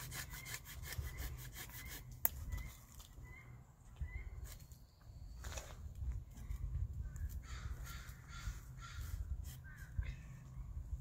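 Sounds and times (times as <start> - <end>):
hand saw cutting wood: 0.0 - 2.2.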